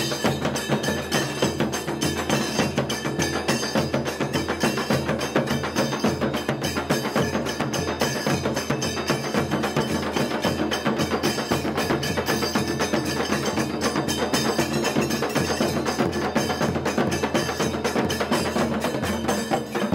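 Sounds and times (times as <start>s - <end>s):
fast dense percussion music: 0.0s - 19.9s.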